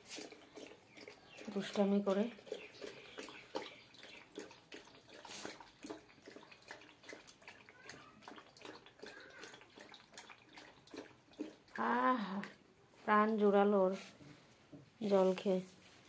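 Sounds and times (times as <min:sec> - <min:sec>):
dog lapping water: 0:00.0 - 0:11.8.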